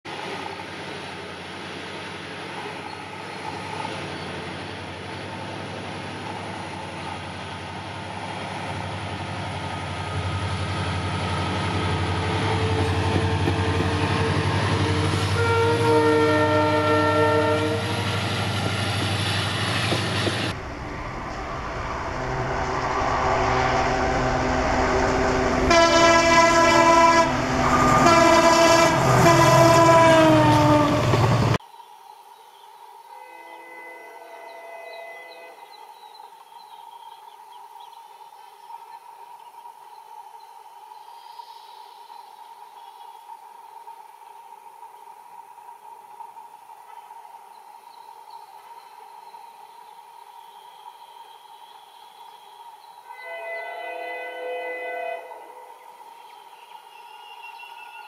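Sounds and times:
diesel locomotive passing: 0.1 - 31.6, 33.2 - 36.5, 42.6 - 58.0
train wheels on rails: 0.1 - 31.6
locomotive horn blasts: 12.4 - 18.2, 22.1 - 31.2, 33.1 - 35.7, 53.1 - 55.7.

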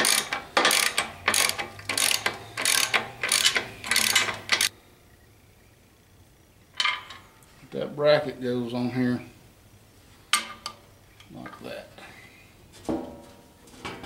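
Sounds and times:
ratchet wrench clicking: 0.0 - 4.7.

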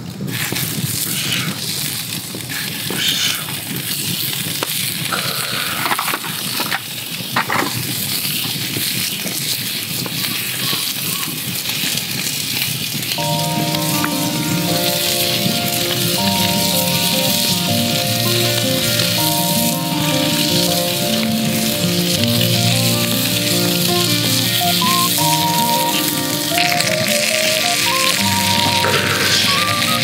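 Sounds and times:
campfire crackling: 0.0 - 30.0
foil crinkling: 0.2 - 30.0
background music: 13.2 - 30.0.

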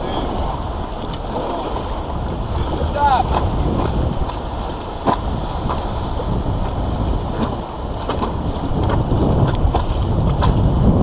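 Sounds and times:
sharp water splashes: 0.2 - 10.7
river rapids rushing: 2.5 - 6.4.

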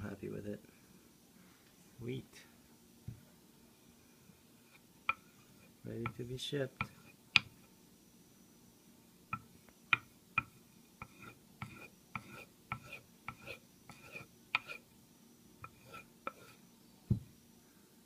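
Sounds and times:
dull thump: 17.1 - 17.3.

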